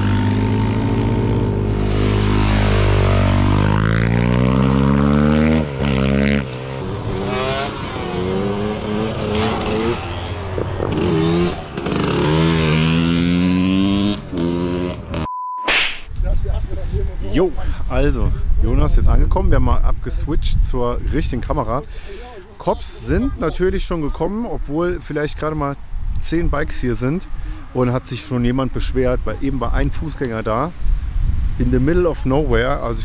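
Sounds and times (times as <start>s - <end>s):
motorcycle engines revving: 0.0s - 15.3s
electronic beep: 15.3s - 15.8s.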